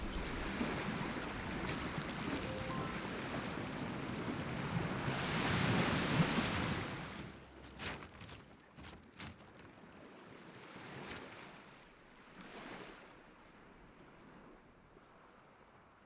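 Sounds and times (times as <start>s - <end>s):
waves washing on stony shore: 0.0s - 8.1s.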